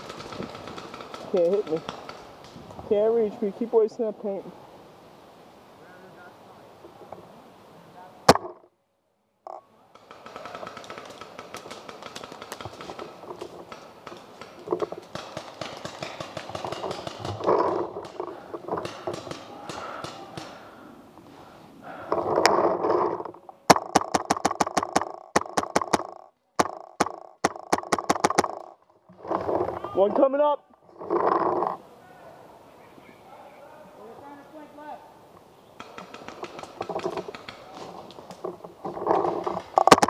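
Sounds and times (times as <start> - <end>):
rustling: 9.5 - 31.9, 35.8 - 40.0
paintball marker shots: 23.7 - 28.7
distant pops: 23.7 - 28.8.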